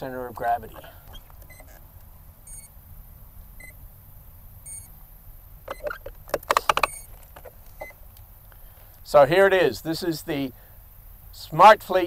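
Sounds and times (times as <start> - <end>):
short electronic beeps: 2.5 - 2.7, 4.6 - 4.9, 6.8 - 7.1
clicks and knocks of handling: 5.7 - 7.9.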